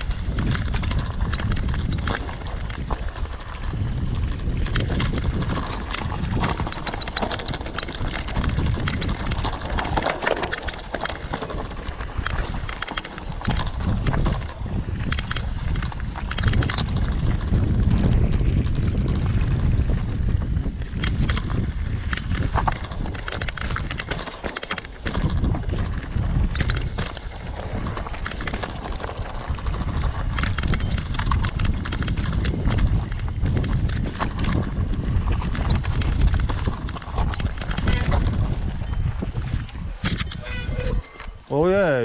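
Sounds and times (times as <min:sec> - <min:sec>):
bike rattling and knocking: 0:00.0 - 0:42.0
wind buffeting microphone: 0:00.0 - 0:42.0
tyres rolling over stones: 0:00.1 - 0:17.8.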